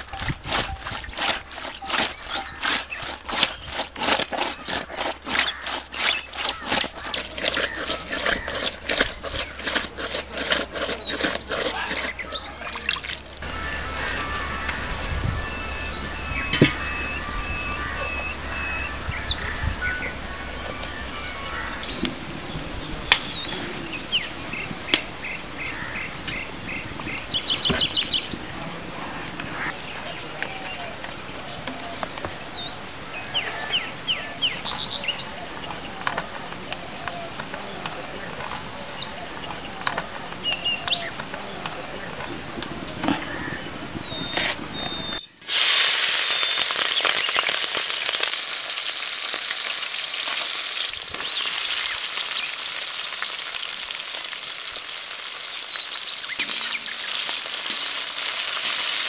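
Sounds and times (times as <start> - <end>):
wild birds chirping: 0.0 - 45.4, 49.5 - 59.0
fish scraped on stone slab: 0.4 - 12.4.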